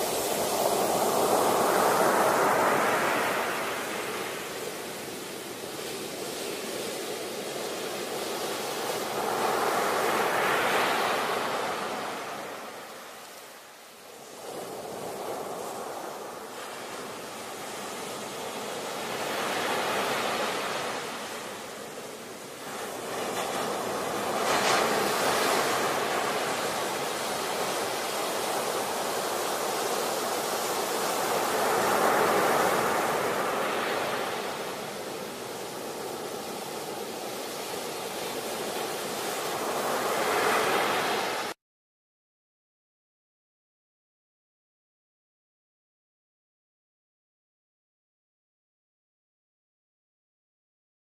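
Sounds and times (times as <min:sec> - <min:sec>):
ocean waves breaking: 0:00.0 - 0:41.6.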